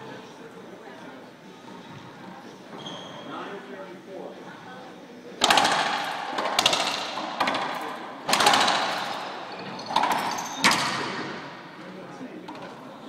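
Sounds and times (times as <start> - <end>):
racquetball hits echoing: 5.4 - 11.7.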